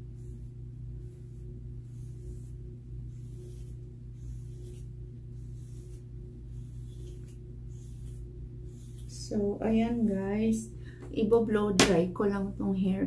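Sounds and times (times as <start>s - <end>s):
comb swishing through hair: 0.0s - 10.2s
steady low hum: 0.0s - 13.0s.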